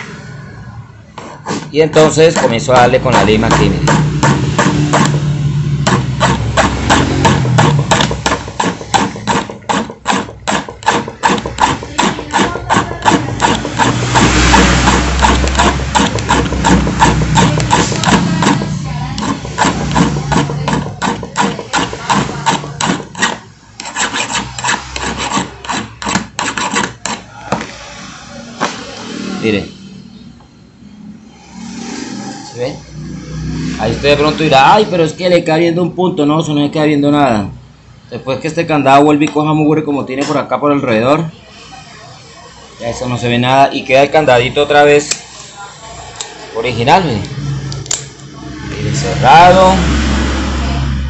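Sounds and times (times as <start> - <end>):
file rasping on metal: 5.9 - 27.3.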